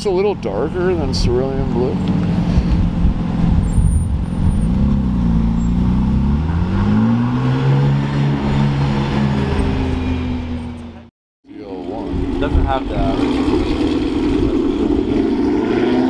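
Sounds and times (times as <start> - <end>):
sports car engine accelerating: 0.5 - 11.1.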